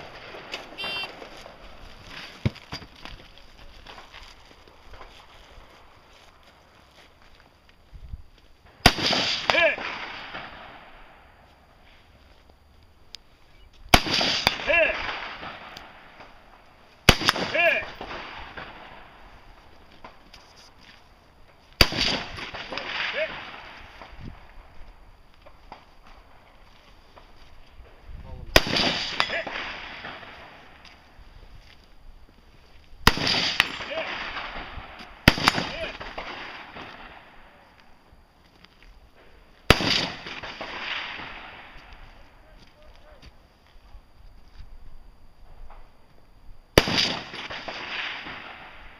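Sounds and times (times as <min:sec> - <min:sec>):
short pitched tone: 0:00.8 - 0:01.2
rifle shot with echo: 0:08.8 - 0:11.2, 0:13.9 - 0:19.2, 0:21.8 - 0:24.5, 0:28.5 - 0:30.8, 0:33.0 - 0:37.6, 0:39.7 - 0:42.0, 0:46.8 - 0:48.9.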